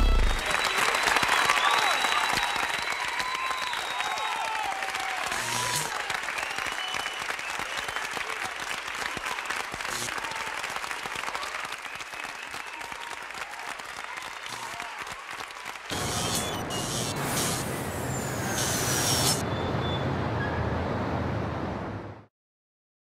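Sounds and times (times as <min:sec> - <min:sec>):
wind and road noise: 0:17.2 - 0:22.2.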